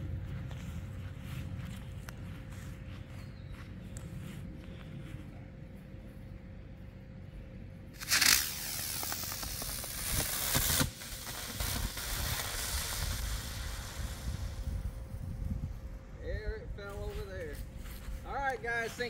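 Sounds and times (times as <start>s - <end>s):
firework launching whoosh: 8.0s - 15.0s
firework hissing: 8.0s - 15.5s.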